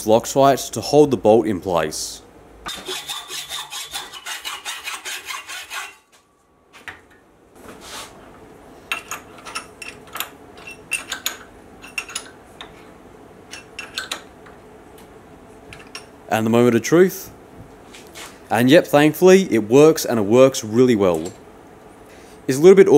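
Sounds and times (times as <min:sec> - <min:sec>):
spanner clicking on metal: 0:13.5 - 0:14.3.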